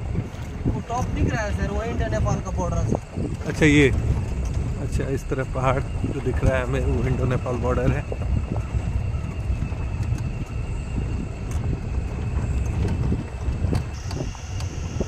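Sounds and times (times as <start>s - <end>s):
vehicle engine and road rumble: 0.0s - 15.0s
crickets shrilling: 0.9s - 15.0s
high insect note: 4.1s - 15.0s.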